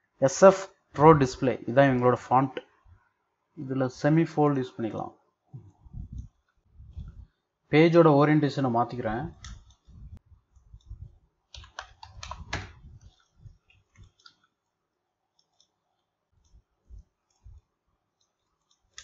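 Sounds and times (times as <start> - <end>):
mouse and keyboard clicking: 10.6 - 14.6, 15.3 - 17.6, 18.2 - 19.0.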